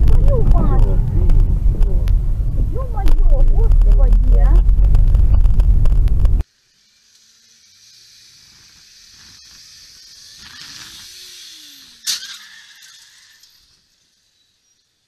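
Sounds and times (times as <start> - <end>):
traffic noise: 0.0 - 6.4.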